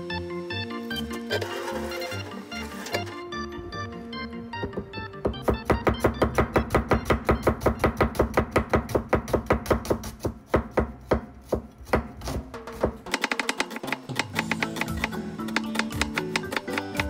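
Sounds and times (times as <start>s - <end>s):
knife chopping on cutting board: 4.7s - 17.0s.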